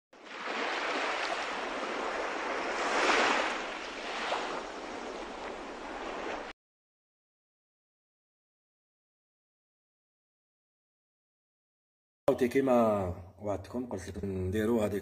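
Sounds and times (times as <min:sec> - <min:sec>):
waves washing in: 0:00.2 - 0:06.6.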